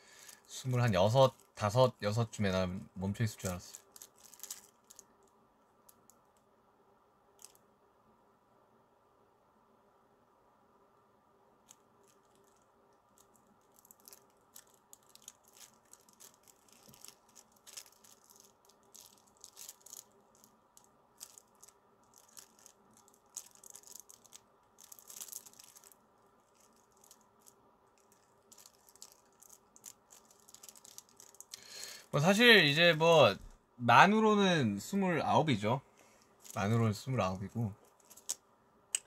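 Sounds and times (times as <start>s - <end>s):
low room hum: 0.0s - 39.0s
handling clicks and rustles: 37.5s - 38.4s.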